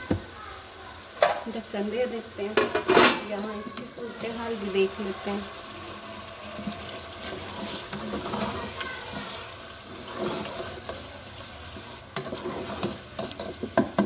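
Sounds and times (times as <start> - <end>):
chicken sizzling in oil: 0.0 - 14.0
wooden spatula scraping pot: 6.4 - 14.0.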